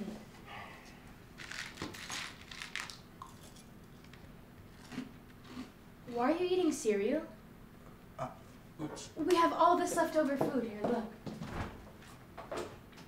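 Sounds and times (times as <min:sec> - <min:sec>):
cereal crunching: 0:01.4 - 0:05.7.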